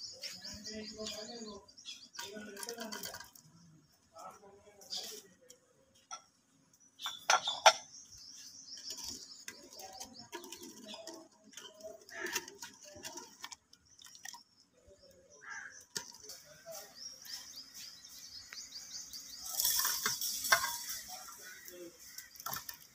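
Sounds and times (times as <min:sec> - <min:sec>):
birds chirping: 0:00.0 - 0:22.9
metal ladle scraping a pot: 0:19.4 - 0:21.2.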